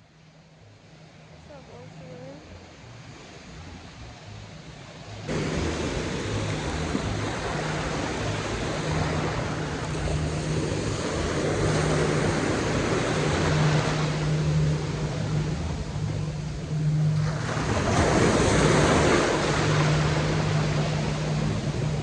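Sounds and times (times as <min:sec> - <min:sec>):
wind buffeting microphone: 0:01.8 - 0:22.0
ocean surf breaking: 0:04.9 - 0:22.0.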